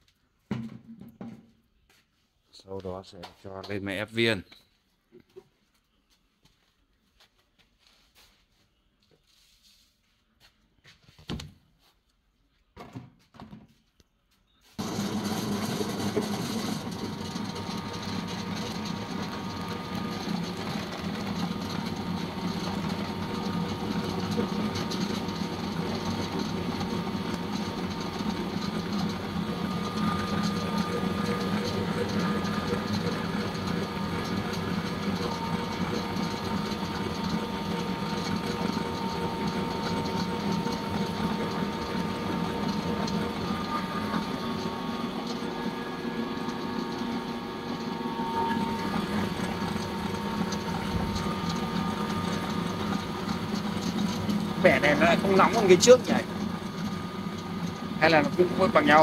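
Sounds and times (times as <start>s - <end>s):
pellet mill motor hum and whine: 14.6s - 59.0s.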